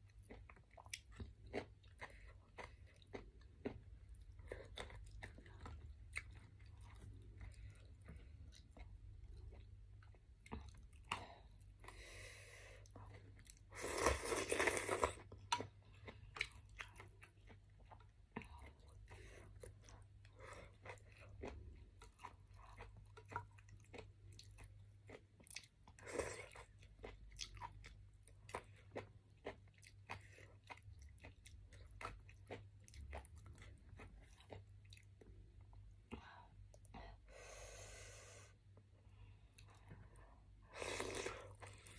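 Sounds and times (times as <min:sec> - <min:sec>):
chewing and crunching: 0:00.0 - 0:12.2, 0:12.8 - 0:36.9, 0:39.2 - 0:41.9.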